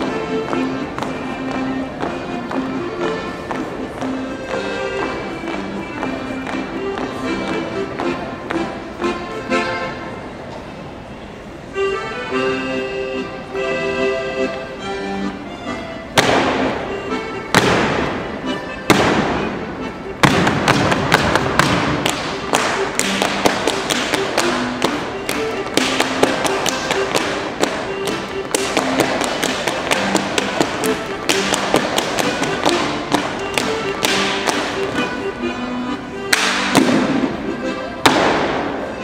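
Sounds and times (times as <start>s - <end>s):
accordion folk dance tune: 0.0s - 39.0s
feet stamping: 16.2s - 39.0s
hands slapping thighs and shoes: 20.2s - 35.1s
loud hand claps: 20.3s - 24.6s, 36.3s - 37.0s.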